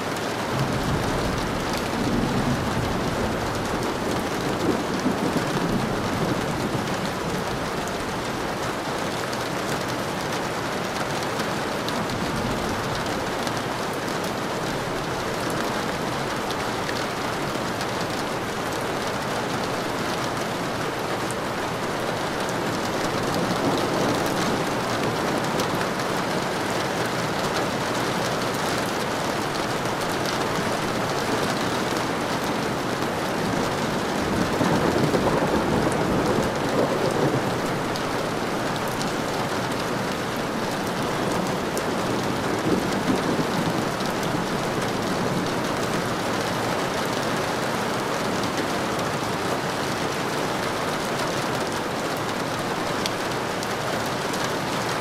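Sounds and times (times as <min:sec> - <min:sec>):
steady rain falling: 0:00.0 - 0:55.0
thunder rolling: 0:00.5 - 0:07.8, 0:14.7 - 0:27.9, 0:29.1 - 0:46.3.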